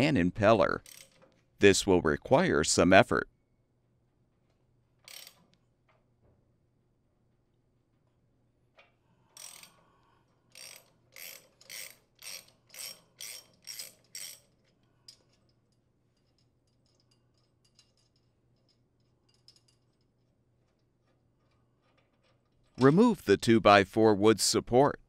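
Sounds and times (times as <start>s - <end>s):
socket ratchet clicking: 5.0s - 5.5s, 10.5s - 14.5s.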